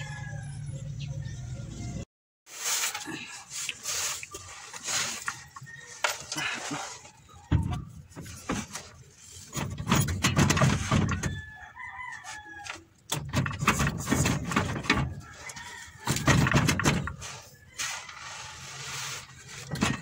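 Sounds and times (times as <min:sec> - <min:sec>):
rooster crowing: 0:00.0 - 0:00.8, 0:11.3 - 0:12.9, 0:15.2 - 0:16.3
knocks and clatter of work: 0:04.8 - 0:11.6, 0:12.6 - 0:20.0.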